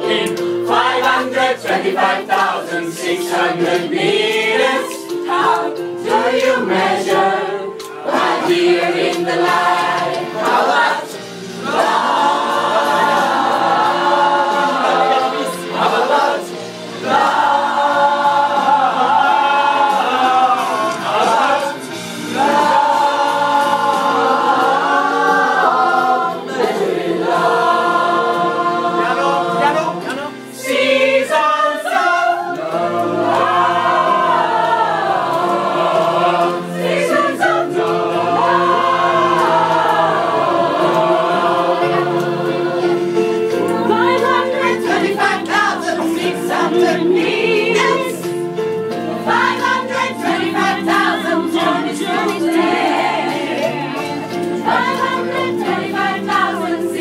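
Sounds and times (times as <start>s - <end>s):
group singing in chorus: 0.0s - 57.0s.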